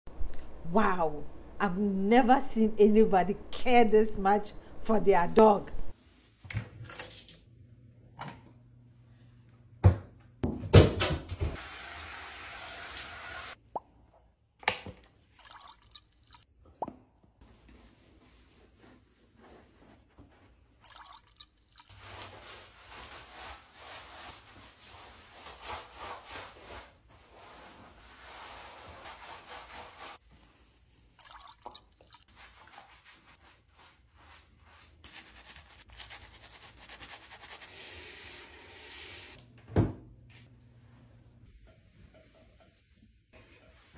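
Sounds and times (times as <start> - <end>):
water dripping and plopping: 15.3 - 17.1, 20.8 - 21.9, 31.2 - 32.3.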